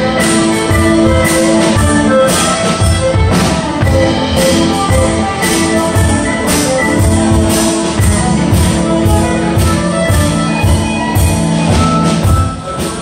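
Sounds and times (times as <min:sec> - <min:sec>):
band playing dance tune: 0:00.0 - 0:13.0.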